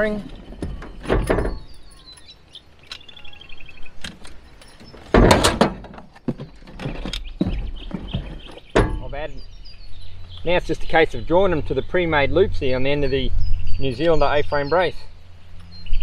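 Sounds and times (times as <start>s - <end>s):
bird chirping: 0.0s - 5.3s, 6.1s - 16.0s.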